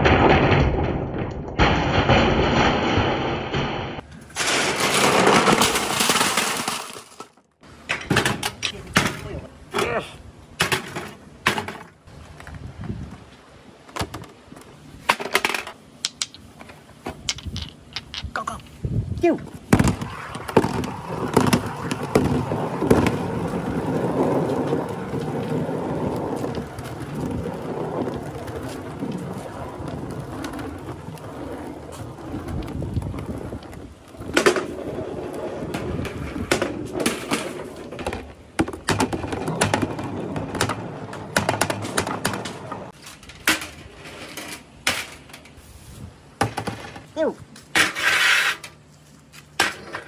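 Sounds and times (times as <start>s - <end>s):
balls rolling on plastic lid: 4.4s - 7.4s, 17.3s - 18.3s, 19.8s - 42.9s
billiard balls clacking: 15.1s - 18.6s, 32.4s - 45.2s.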